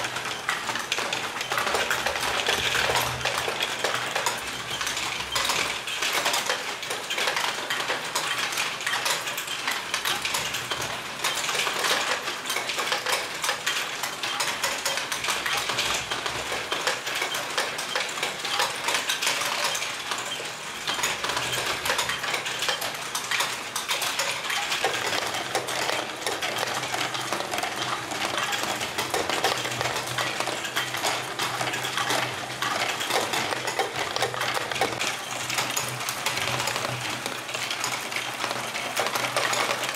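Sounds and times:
plastic balls clattering: 0.0s - 39.9s
plastic gears rattling: 0.0s - 39.9s.

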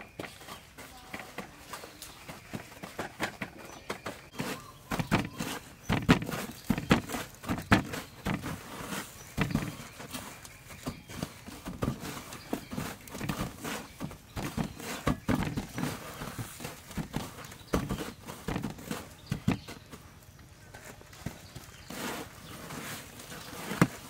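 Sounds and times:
crumbly rustling: 0.0s - 24.0s.

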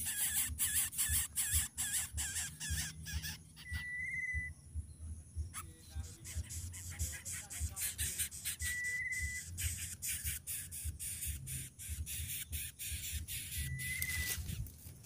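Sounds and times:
thin whistle-like bird notes: 3.4s - 10.6s, 11.4s - 14.6s
twigs and leaves rustling: 13.6s - 15.0s.

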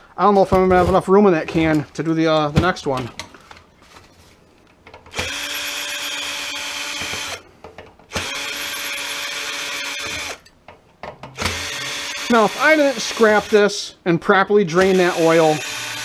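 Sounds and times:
cordless drill motor hum: 5.1s - 7.4s, 8.1s - 10.4s, 11.4s - 13.5s, 14.8s - 16.0s.

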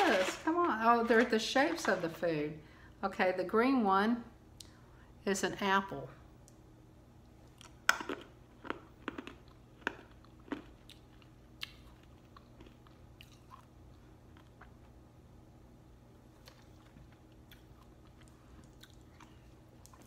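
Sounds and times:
hard candy crunching: 0.0s - 2.1s, 7.6s - 13.6s
chewing clicks: 16.4s - 20.0s.

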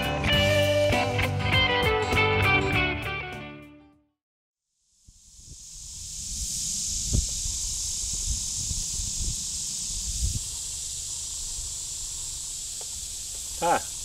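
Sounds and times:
high-pitched hiss: 4.7s - 14.0s
wind rumble on microphone: 5.1s - 11.8s.

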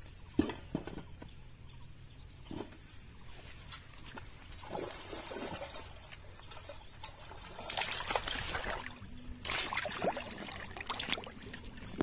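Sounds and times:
person wading through river water: 3.5s - 12.0s.

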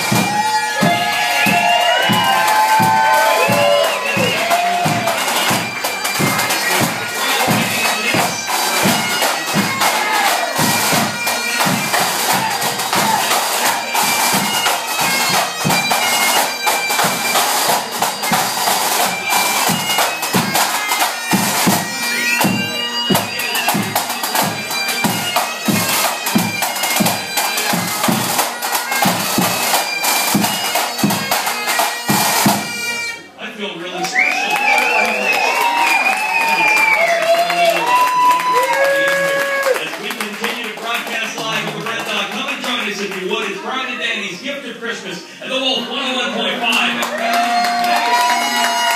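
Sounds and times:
bass drum beat: 0.0s - 13.7s
snare drum: 0.0s - 21.8s
bagpipes playing: 0.0s - 33.4s, 46.3s - 48.9s.

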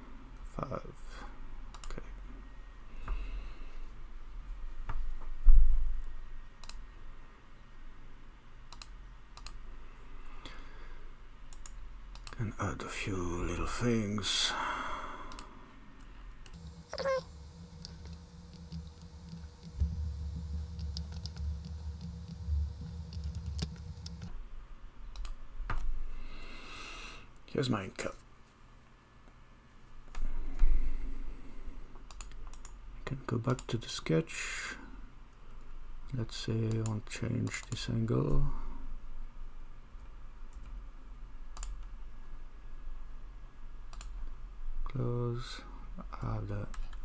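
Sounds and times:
low steady hum: 0.0s - 34.2s
computer mouse clicks: 1.7s - 2.0s, 6.6s - 6.8s, 8.7s - 9.6s, 11.5s - 12.4s, 25.1s - 25.9s, 32.1s - 32.8s, 41.6s - 41.9s, 43.9s - 44.2s
keyboard and mouse clicks: 8.7s - 9.6s, 11.5s - 12.4s, 17.8s - 19.8s, 20.7s - 22.4s, 23.0s - 24.3s, 25.1s - 25.9s, 32.1s - 32.8s, 41.6s - 41.9s
low hum: 16.4s - 24.6s
keyboard clicks: 25.1s - 25.4s.

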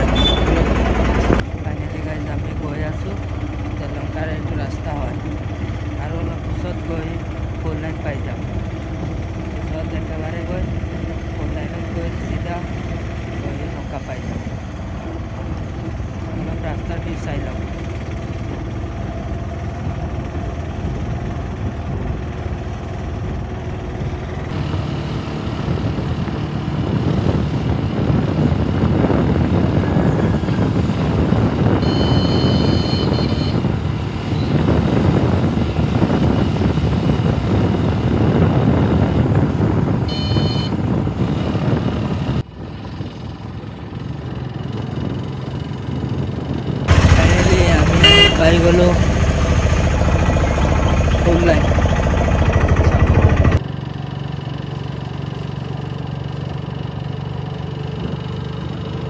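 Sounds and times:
vehicle engine and road noise: 0.0s - 59.0s
high-pitched horn beeps: 0.1s - 0.6s, 31.8s - 33.6s, 40.1s - 40.8s, 47.9s - 48.6s.

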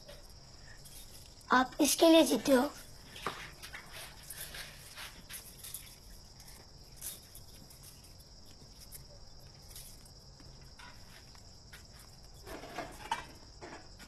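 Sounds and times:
crickets trilling: 0.0s - 14.0s.

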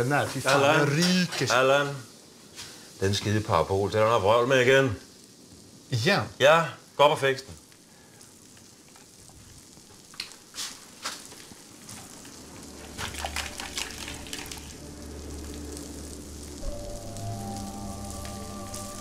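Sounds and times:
food sizzling in frying pan: 0.0s - 19.0s
low hum: 12.4s - 19.0s.

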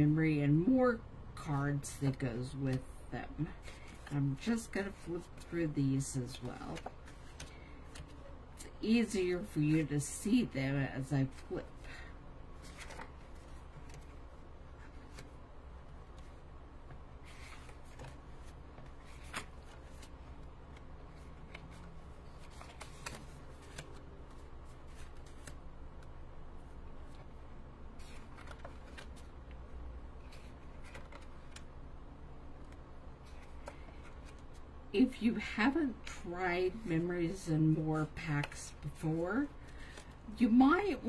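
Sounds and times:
low steady hum: 0.0s - 41.0s
cards rustling and tapping: 6.3s - 8.2s, 12.6s - 26.1s, 28.0s - 29.6s, 30.3s - 31.7s, 32.6s - 34.6s.

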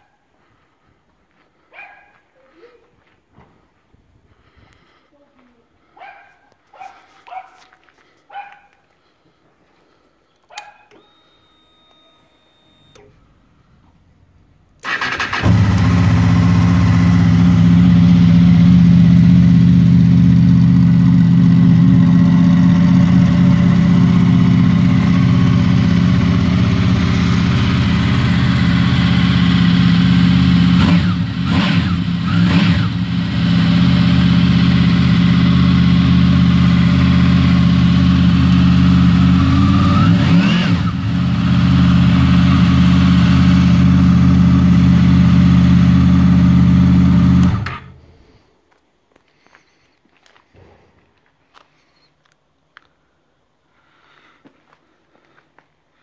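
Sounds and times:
engine revving in throttle blips: 14.8s - 48.0s
motorcycle engine idling: 15.3s - 40.0s.

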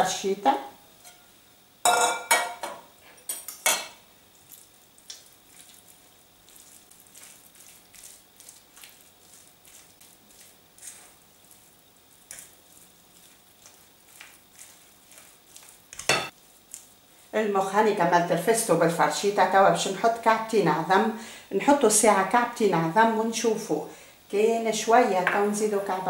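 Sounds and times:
fork clinking: 16.0s - 16.3s.

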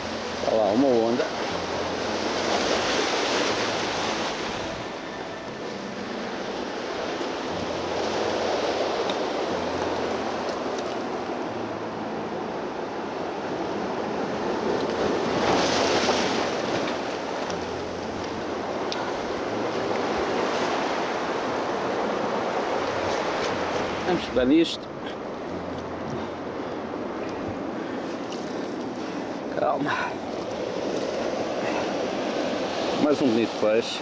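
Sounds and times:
surf breaking over rocks: 14.2s - 24.8s, 27.8s - 34.0s.

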